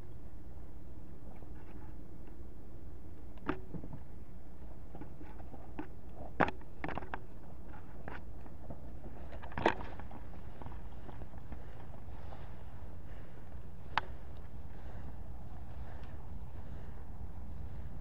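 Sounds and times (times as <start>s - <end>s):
twigs and brush snapping: 4.9s - 15.0s.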